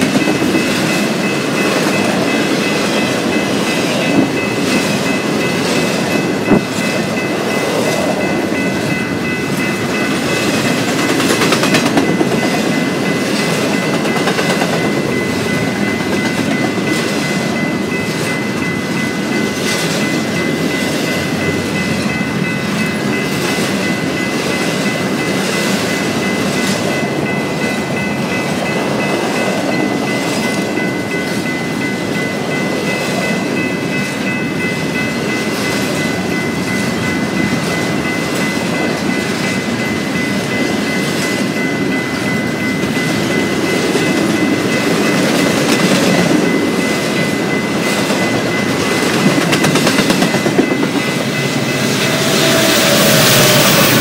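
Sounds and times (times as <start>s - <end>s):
steady high-pitched tone: 0.0s - 54.0s
train wheels clicking over rail joints: 9.5s - 17.3s, 47.4s - 54.0s.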